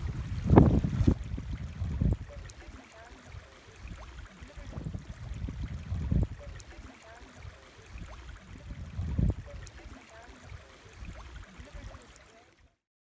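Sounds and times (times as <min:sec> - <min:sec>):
low rumble on microphone: 0:00.0 - 0:02.5, 0:03.8 - 0:06.6, 0:07.4 - 0:09.7
stream babbling over stones: 0:00.0 - 0:12.7.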